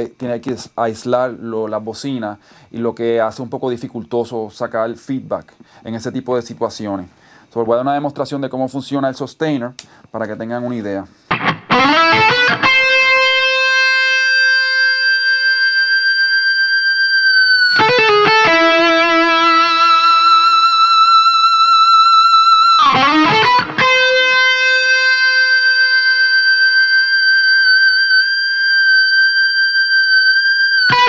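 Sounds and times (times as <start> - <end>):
electric guitar sustained notes: 11.3 - 31.0.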